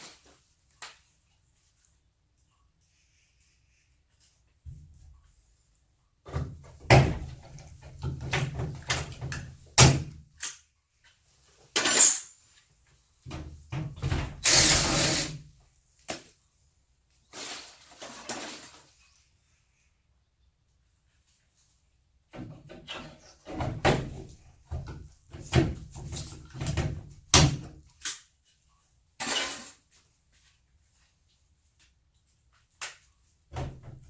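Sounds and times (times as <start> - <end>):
cordless drill drilling into metal: 14.4 - 15.4.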